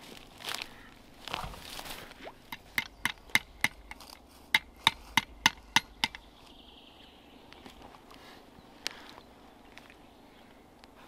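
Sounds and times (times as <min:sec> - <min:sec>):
sharp taps on pipe fitting: 0:02.5 - 0:04.0, 0:04.6 - 0:06.2.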